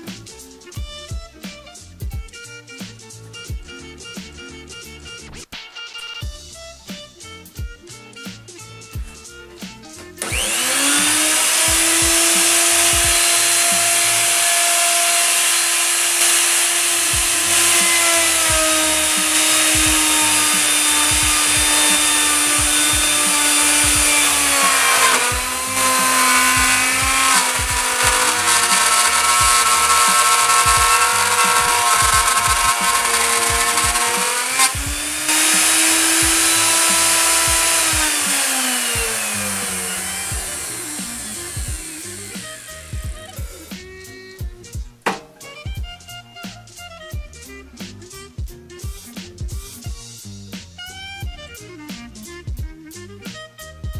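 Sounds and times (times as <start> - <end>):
router motor whining: 10.2 - 43.8.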